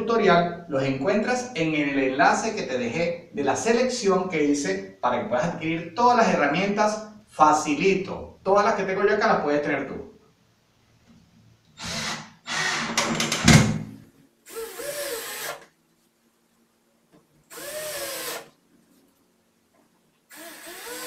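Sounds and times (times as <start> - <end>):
cordless drill driving screws: 11.8 - 13.0, 14.5 - 15.7, 17.5 - 18.5, 20.3 - 21.0.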